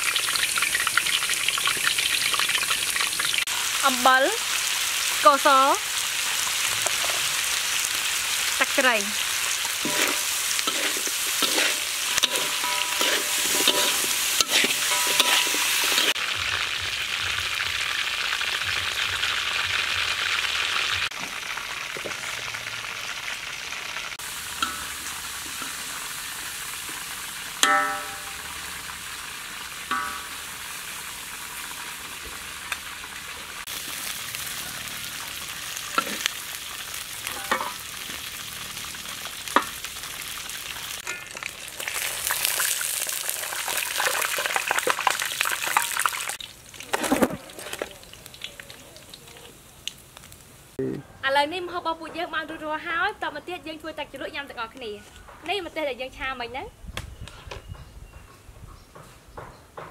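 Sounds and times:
chicken sizzling in oil: 0.0s - 50.8s
metal spatula scraping wok: 9.2s - 16.2s, 35.9s - 36.3s, 37.2s - 38.4s.

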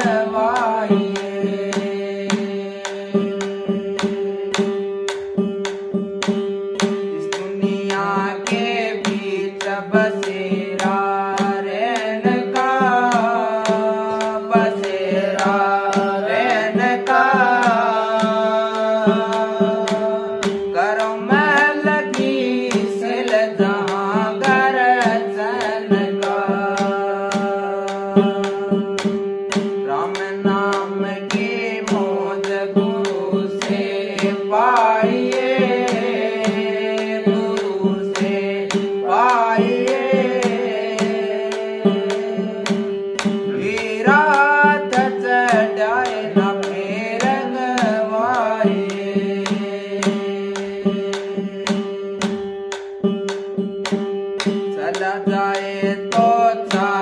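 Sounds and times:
man singing: 0.0s - 53.2s, 54.4s - 57.0s
hand drum strokes: 0.0s - 57.0s.

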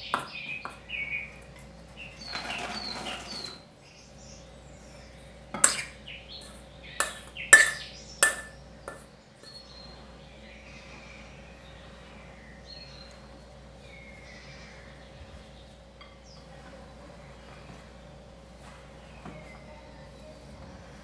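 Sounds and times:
spoon scraping metal bowl: 5.6s - 9.6s
ringing clinks of metal bowl: 7.0s - 9.6s.

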